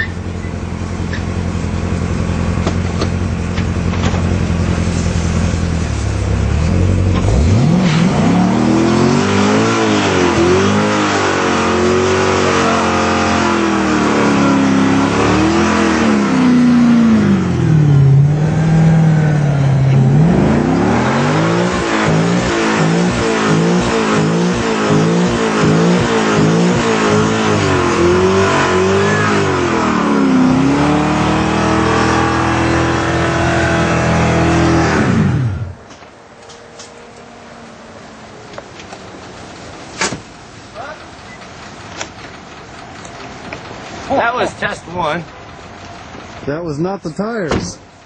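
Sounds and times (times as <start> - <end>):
car engine revving: 0.0 - 39.9
tyres spinning in a burnout: 7.3 - 35.8.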